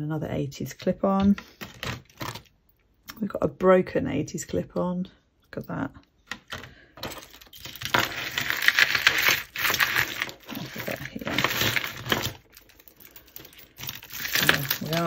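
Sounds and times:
jewellery clinking and jangling: 5.6 - 15.0.

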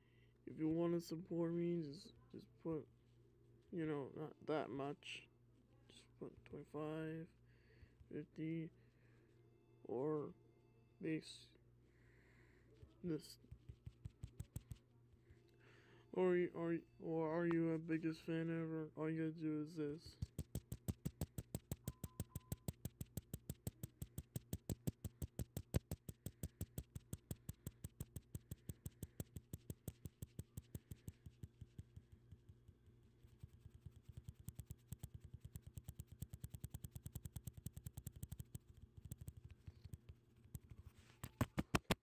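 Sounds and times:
faint low hum: 0.0 - 41.9
smartphone keypad clicks: 21.4 - 30.9.

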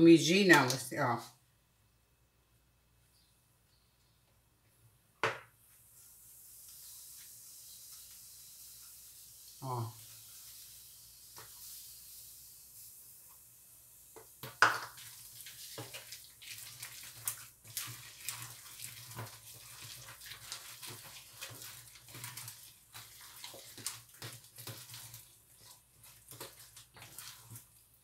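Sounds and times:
spoon stirring wet batter: 14.2 - 28.0.

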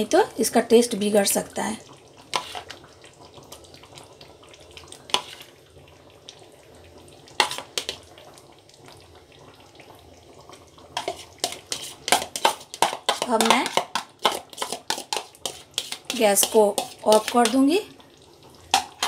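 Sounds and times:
metal spoon scraping a bowl: 11.0 - 17.6.

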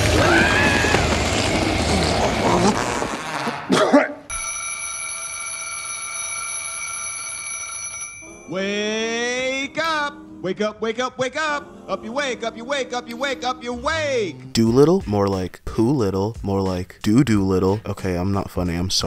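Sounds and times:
alarm clock bell ringing: 4.3 - 9.0
person speaking: 8.3 - 10.2.

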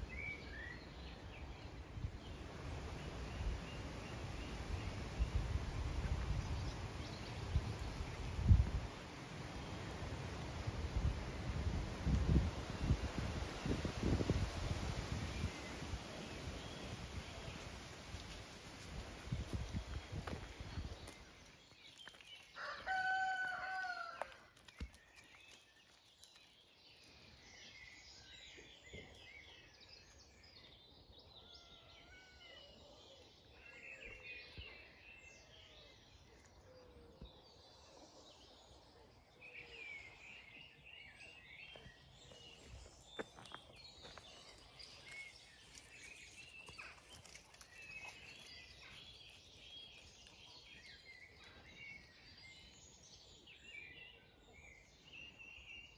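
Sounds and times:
songbirds singing faintly: 0.0 - 55.9.

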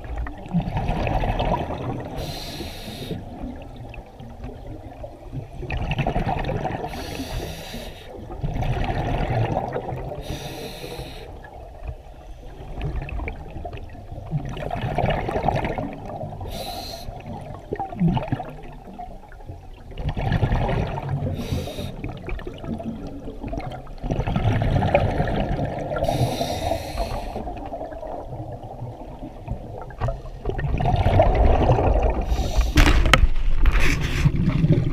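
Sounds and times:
exhaled bubbles gurgling: 0.0 - 34.9
scuba regulator breathing underwater: 2.1 - 3.4, 6.8 - 8.2, 10.1 - 11.4, 16.4 - 17.4, 21.2 - 22.2, 25.8 - 27.8, 32.1 - 33.1.

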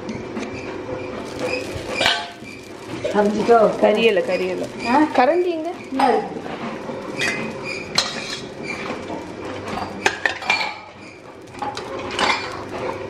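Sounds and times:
metal utensils clinking on vessels: 9.7 - 11.0.

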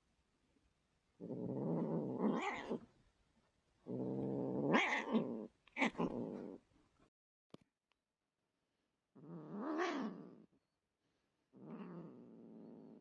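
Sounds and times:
cat growling and yowling: 1.2 - 2.9, 3.9 - 6.6, 9.2 - 10.5, 11.6 - 13.0.

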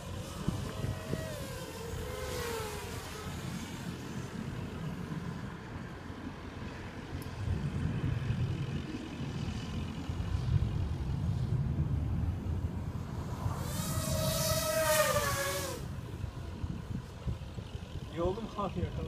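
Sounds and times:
quadcopter motors whining: 0.0 - 7.8, 12.4 - 19.0.

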